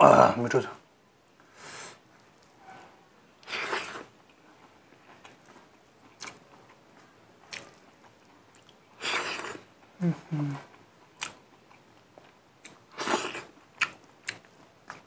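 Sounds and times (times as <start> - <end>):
soft chewing and mouth noises: 1.4 - 15.0.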